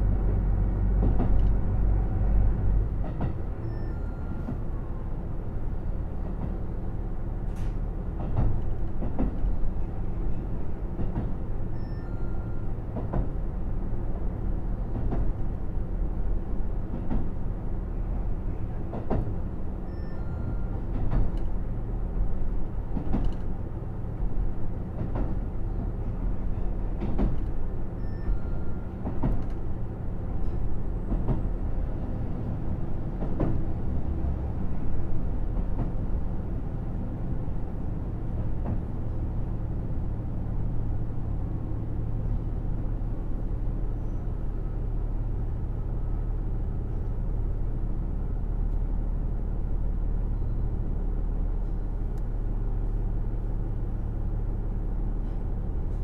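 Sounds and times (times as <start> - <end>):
train wheels clicking over rail joints: 7.5 - 9.6, 22.2 - 23.6, 24.9 - 31.6, 33.1 - 33.8.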